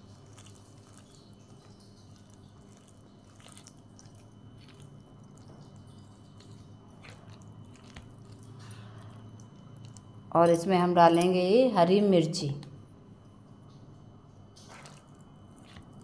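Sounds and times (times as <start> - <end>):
squishing of mashed potato: 0.0 - 10.2, 14.5 - 16.0
steady low hum: 0.0 - 16.0.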